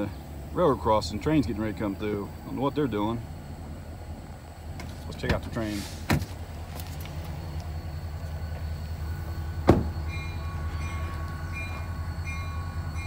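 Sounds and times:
low engine rumble: 0:00.0 - 0:13.0
sharp thump: 0:09.6 - 0:10.0.

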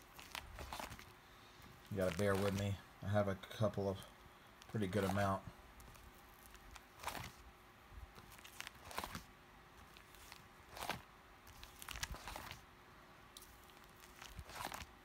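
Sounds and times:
plastic sleeves crinkling: 0:00.0 - 0:02.9, 0:04.5 - 0:07.5, 0:08.1 - 0:12.6, 0:13.4 - 0:15.0.

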